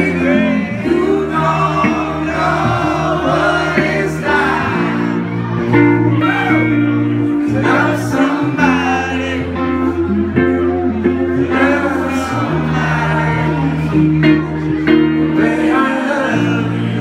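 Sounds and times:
acoustic guitar: 0.0s - 17.0s
low bass notes: 0.0s - 17.0s.

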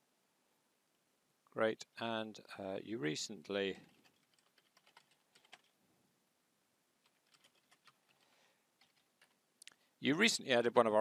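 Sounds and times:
keyboard typing: 3.8s - 5.7s, 7.0s - 9.4s.

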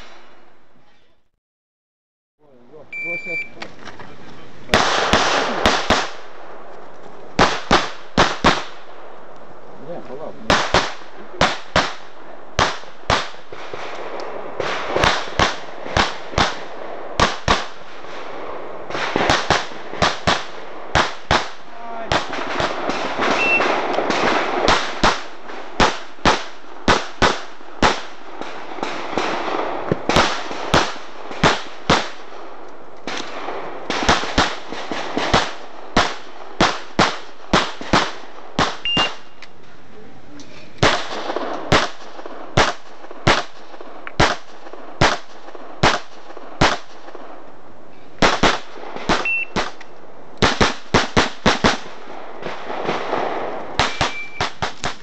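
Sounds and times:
rapid pistol fire: 4.7s - 6.3s, 7.4s - 8.9s, 10.4s - 32.3s, 33.1s - 39.2s, 40.8s - 47.1s, 48.2s - 49.8s, 50.4s - 55.0s.

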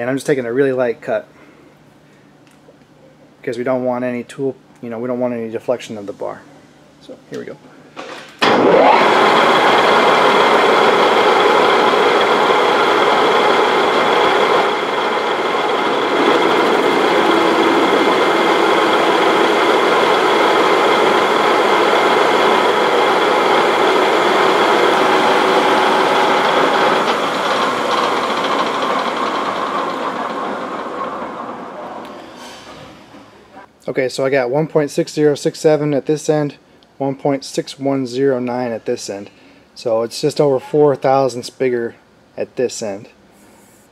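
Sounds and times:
lathe tool cutting steel: 8.4s - 32.1s
lathe gearing whine: 8.4s - 32.4s.

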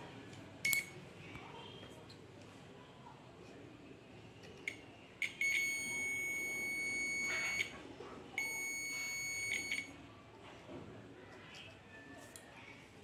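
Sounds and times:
multimeter continuity beeping: 0.6s - 1.0s, 4.6s - 7.8s, 8.4s - 10.0s.

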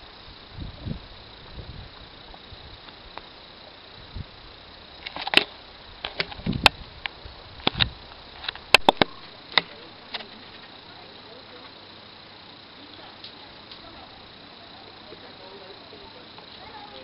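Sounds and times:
steady hiss: 0.0s - 17.0s
sharp clicks and knocks: 5.0s - 6.8s, 7.6s - 10.3s.

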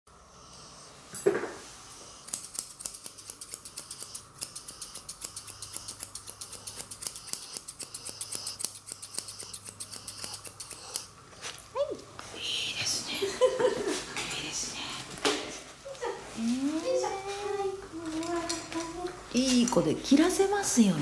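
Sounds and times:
shears snipping fur: 2.0s - 11.7s.

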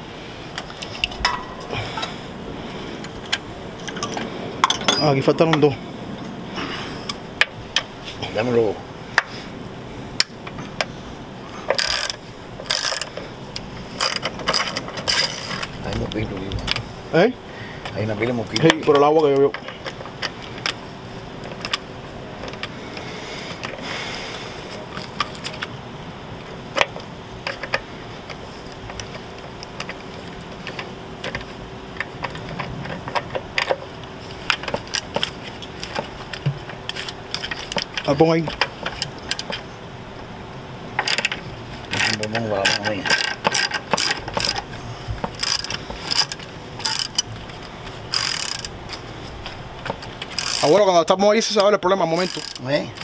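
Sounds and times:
ratchet wrench clicking: 11.7s - 15.7s, 41.9s - 44.7s, 45.3s - 47.3s, 48.1s - 48.8s, 50.0s - 50.9s, 51.5s - 53.0s.

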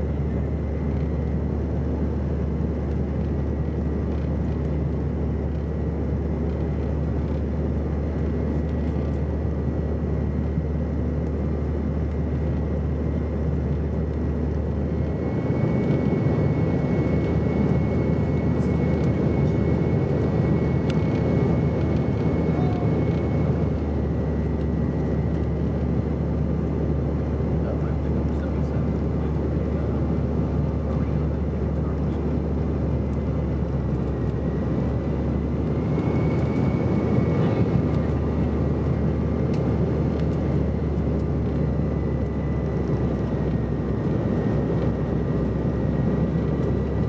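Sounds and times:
jet engines droning: 0.0s - 47.0s
faint high whine: 34.4s - 38.9s.

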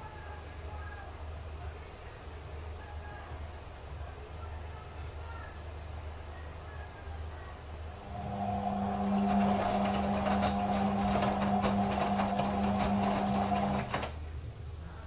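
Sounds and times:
washing machine motor hum: 7.2s - 14.5s.

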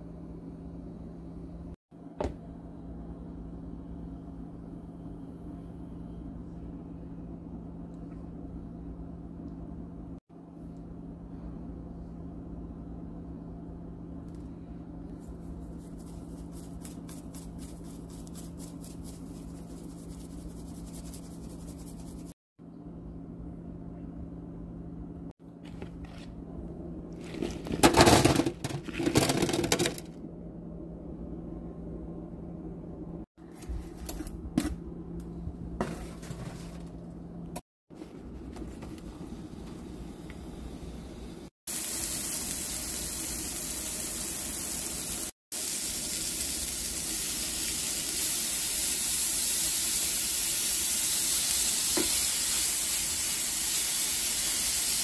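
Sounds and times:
steady low hum: 0.0s - 27.8s, 30.1s - 41.5s
seasoning shaker rattling: 15.5s - 22.3s
food clattering and scraping in bowl: 27.2s - 30.1s.

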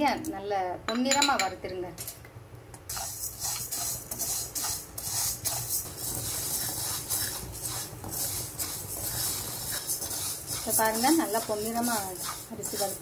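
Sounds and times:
rice scraped around a pan: 2.9s - 13.0s.

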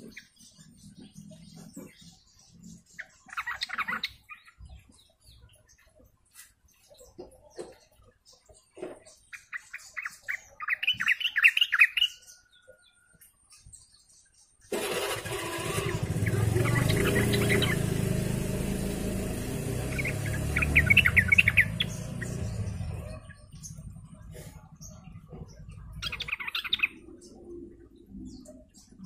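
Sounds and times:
bird chattering song: 0.0s - 29.0s
vehicle engine running: 14.7s - 26.0s.

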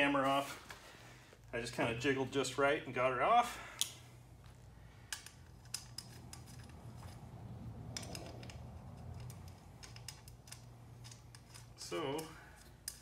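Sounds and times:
metallic clicks and taps: 5.1s - 7.2s, 7.8s - 13.0s.

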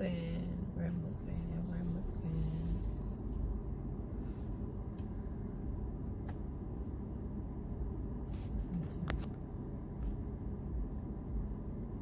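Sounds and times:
car engine rumble and road noise: 0.0s - 12.0s.

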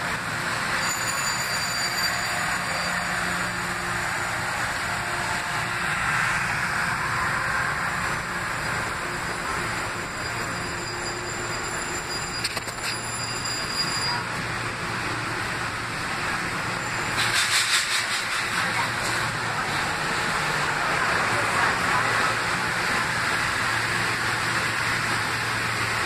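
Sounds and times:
train hissing: 15.2s - 26.0s.

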